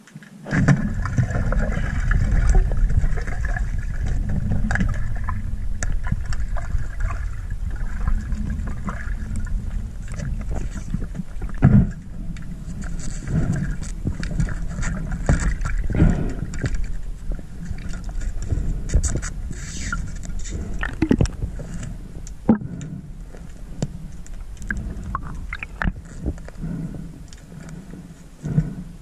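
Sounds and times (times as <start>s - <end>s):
underwater rumble of moving water: 0.4s - 29.0s.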